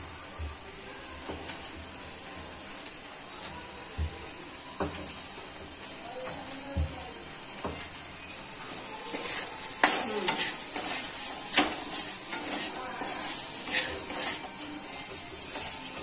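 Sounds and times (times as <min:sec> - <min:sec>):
chicken sizzling in a pan: 0:00.0 - 0:16.0
spatula scraping a pan: 0:09.1 - 0:16.0.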